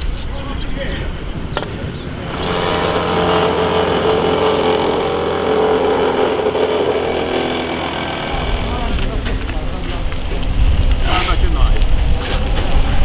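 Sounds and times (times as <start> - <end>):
plate compactor engine drone: 2.2 - 11.1.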